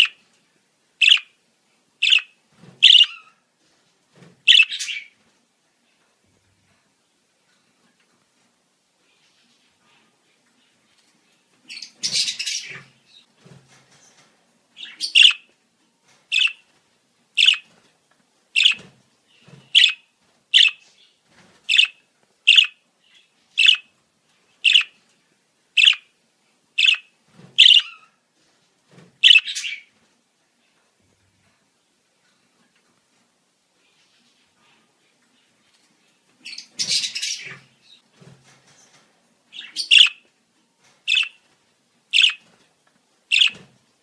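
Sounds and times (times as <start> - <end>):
budgerigar chirps: 1.0 - 1.3, 2.0 - 3.2, 4.5 - 5.0, 14.8 - 15.4, 16.3 - 16.6, 17.4 - 17.6, 18.6 - 18.8, 19.8 - 20.0, 20.6 - 20.8, 21.7 - 22.8, 23.6 - 23.8, 24.7 - 24.9, 25.8 - 26.1, 26.8 - 28.0, 29.2 - 29.8, 39.6 - 40.2, 41.1 - 41.4, 42.2 - 42.4, 43.3 - 43.6
budgerigar squawk: 2.8 - 3.1, 27.6 - 27.9, 43.3 - 43.5.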